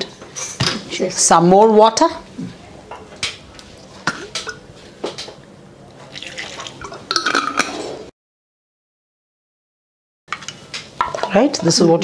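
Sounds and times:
water pouring from glass bottle: 6.1s - 7.7s
glass and vessels clinking: 6.1s - 8.1s.

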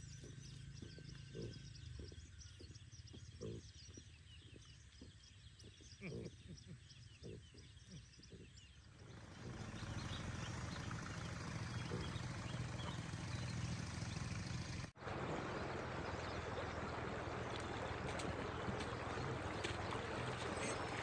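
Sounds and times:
stream trickling over stones: 15.0s - 21.0s.

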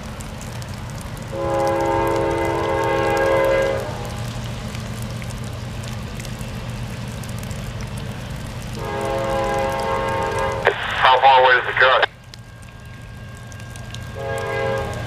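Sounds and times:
locomotive air horn chord: 1.4s - 4.2s, 8.8s - 10.7s, 14.2s - 15.0s
steady low rumble: 3.4s - 15.0s.

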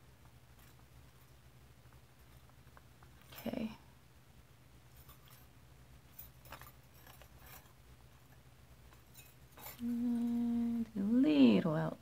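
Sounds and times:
woman humming: 9.6s - 11.6s.

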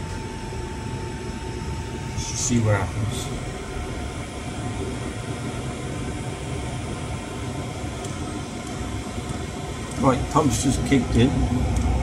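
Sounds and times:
air heater fan running: 0.0s - 12.0s.

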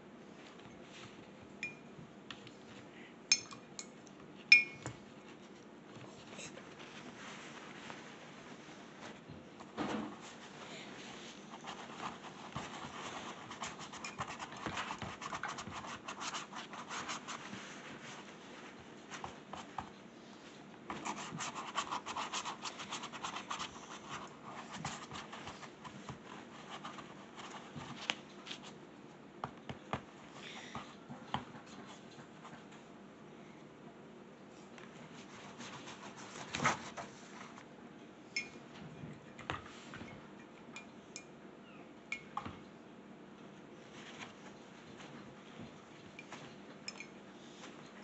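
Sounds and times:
paper towels rustling: 5.3s - 9.3s, 14.6s - 28.8s.

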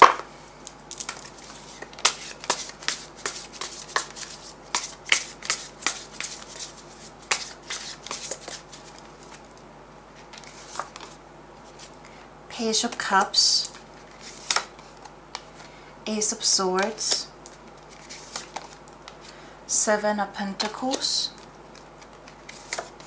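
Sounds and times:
cards being shuffled: 0.9s - 9.6s, 10.2s - 12.0s, 13.6s - 15.7s, 16.8s - 19.4s, 20.7s - 23.0s.

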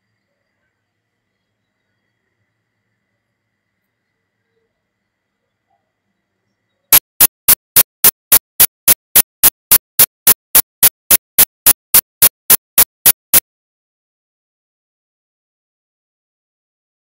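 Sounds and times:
rapid sharp clicks: 6.9s - 13.4s.

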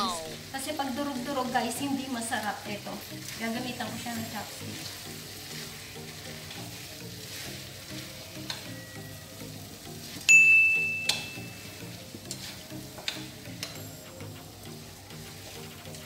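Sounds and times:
background music: 0.0s - 16.0s
noodles sizzling in a frying pan: 0.1s - 16.0s
loud high ding: 10.3s - 11.6s
sharp clicks of chopsticks: 13.1s - 13.8s.

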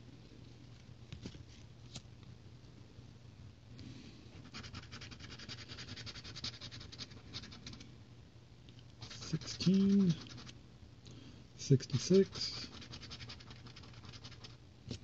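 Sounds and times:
coin scratching lottery ticket: 4.5s - 7.8s, 9.0s - 10.6s, 11.7s - 14.6s.

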